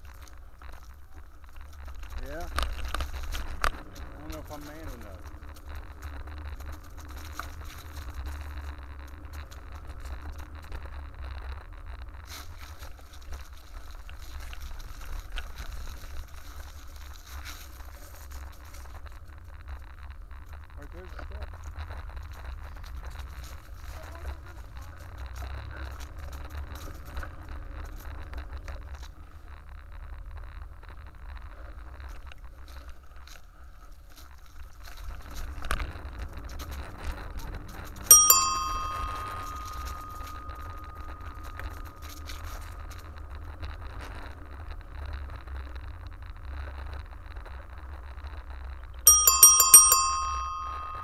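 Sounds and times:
low rumble of riding: 0.0 - 51.0
bicycle bell ringing: 38.1 - 42.1, 49.1 - 51.0.

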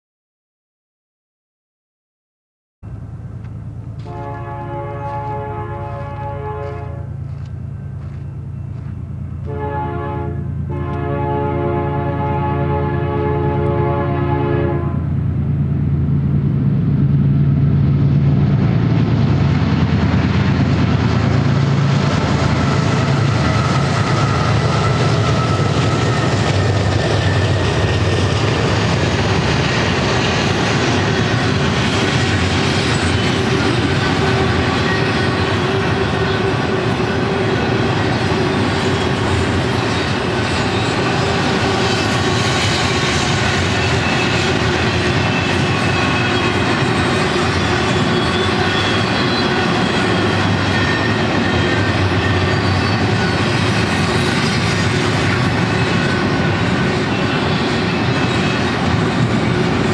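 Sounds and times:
locomotive engine rumble: 2.8 - 59.9
train cars rolling and rattling on rails: 2.9 - 59.9
locomotive horn: 4.0 - 15.2, 29.4 - 53.4.

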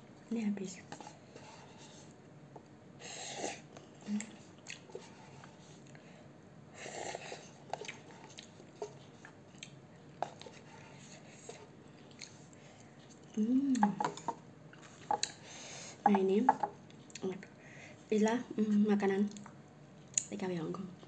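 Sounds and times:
chewing: 3.7 - 6.0, 7.0 - 15.4
person humming: 13.4 - 14.2.

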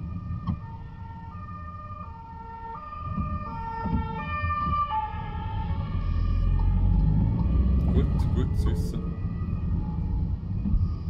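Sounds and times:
ambulance two-tone siren: 0.0 - 11.0
car road noise: 4.7 - 11.0.

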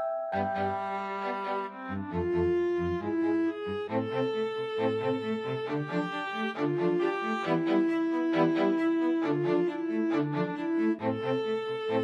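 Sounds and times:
background music with held notes: 0.0 - 12.0.

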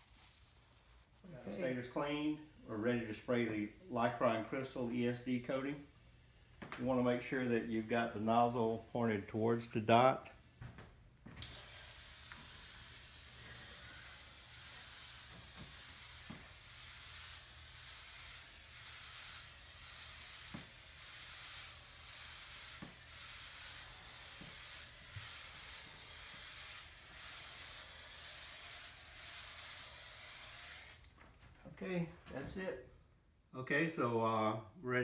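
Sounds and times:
aerosol spray can hissing: 0.0 - 1.2, 11.4 - 31.0.

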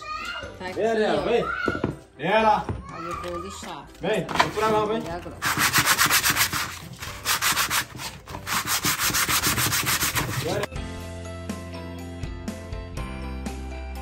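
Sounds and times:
background music: 0.0 - 14.0
sandpaper rubbing on wood: 5.4 - 10.7.

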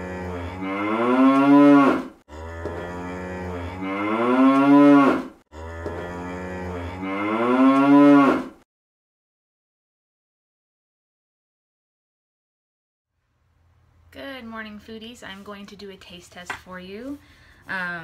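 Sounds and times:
cow mooing: 0.0 - 8.6.

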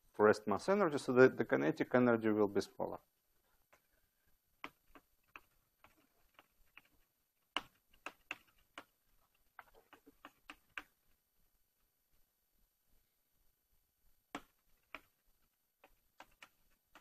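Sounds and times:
chalk clicking on a blackboard: 4.6 - 11.0, 14.3 - 17.0.

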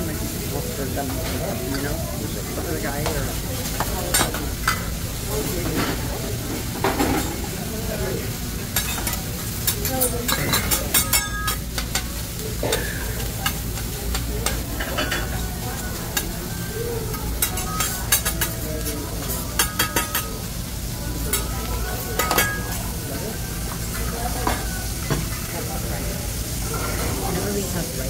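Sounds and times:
rice sizzling on a griddle: 0.0 - 28.0
metal spatulas scraping and clacking: 8.8 - 15.4, 17.4 - 20.3, 22.1 - 22.8.

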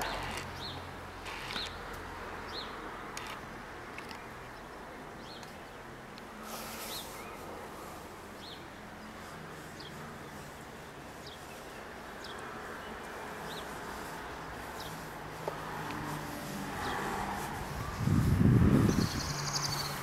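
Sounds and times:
small bird chirping: 18.8 - 20.0.

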